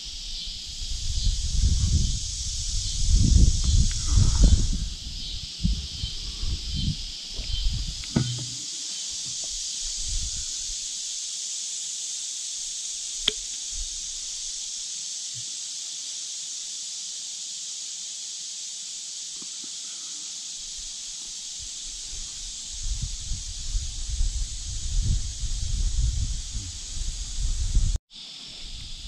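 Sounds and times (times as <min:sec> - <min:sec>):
high-pitched insect chorus: 0:00.0 - 0:29.0
soft handling knocks: 0:08.0 - 0:08.6
sharp click: 0:13.2 - 0:13.6.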